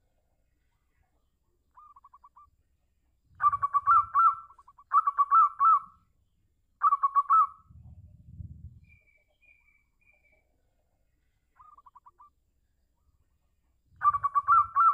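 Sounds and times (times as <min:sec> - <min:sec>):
dove cooing: 0:03.4 - 0:05.8, 0:14.0 - 0:14.9
low rumble: 0:07.7 - 0:08.9.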